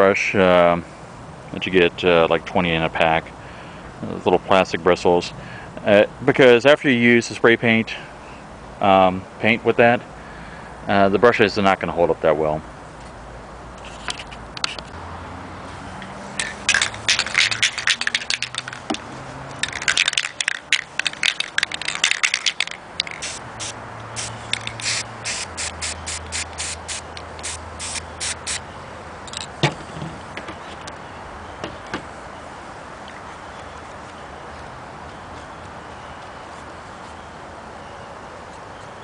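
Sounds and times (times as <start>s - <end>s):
spray paint can hissing: 16.4s - 18.8s, 19.6s - 28.6s.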